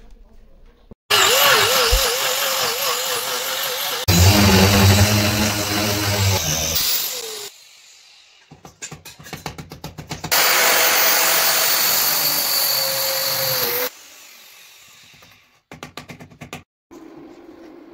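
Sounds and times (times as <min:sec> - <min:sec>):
angle grinder boring into concrete: 0:01.1 - 0:07.6, 0:10.3 - 0:15.1.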